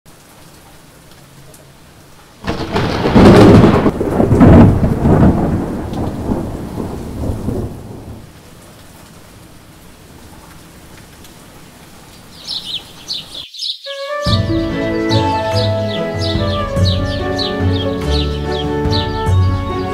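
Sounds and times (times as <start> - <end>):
steady rain: 0.1 - 13.6, 14.6 - 19.9
thunderclap rumbling: 2.4 - 8.3
small birds chirping: 12.1 - 19.9.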